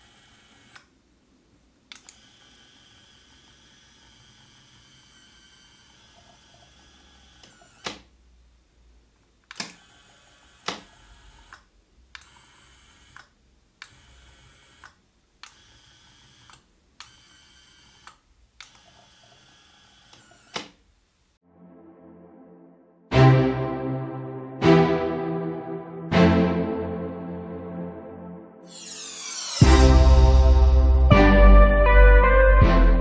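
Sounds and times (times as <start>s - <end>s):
small gear motor whirring: 0.0s - 0.9s, 1.9s - 8.1s, 9.6s - 20.7s, 28.7s - 29.8s.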